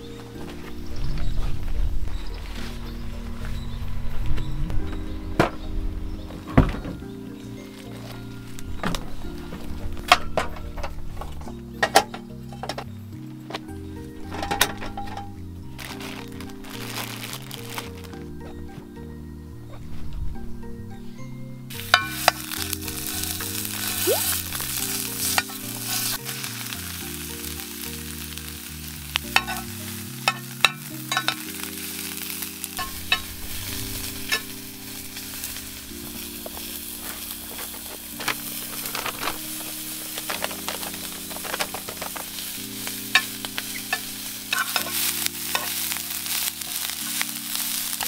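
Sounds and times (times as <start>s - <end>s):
food sizzling in a pan: 15.7s - 18.1s, 21.7s - 48.0s
spoon clinking and scraping pan: 21.7s - 28.5s, 29.4s - 48.0s.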